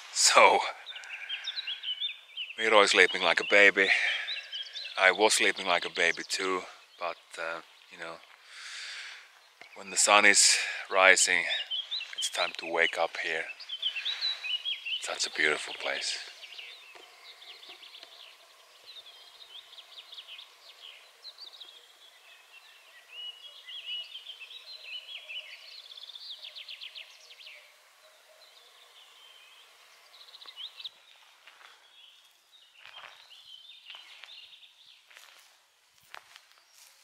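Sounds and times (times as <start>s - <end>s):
songbirds singing: 0.0s - 37.0s
bird trill: 10.9s - 31.2s
footsteps through undergrowth: 30.3s - 37.0s.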